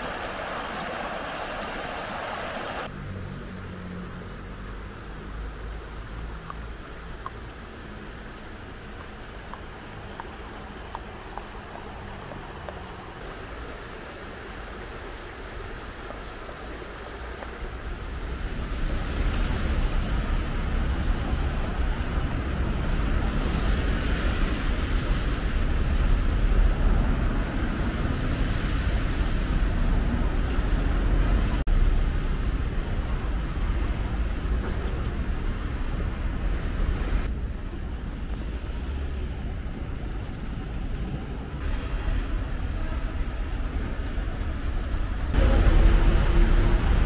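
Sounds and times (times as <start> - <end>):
running water hiss: 0.0 - 2.9, 4.8 - 21.1
road traffic rumble: 0.0 - 47.0.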